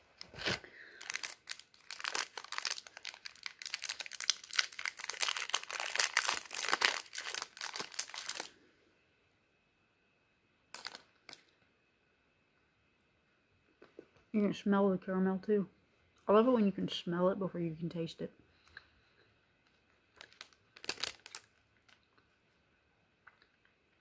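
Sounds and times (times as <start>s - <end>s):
snack wrapper crinkling: 0.2s - 8.5s, 10.7s - 11.5s, 19.6s - 22.3s.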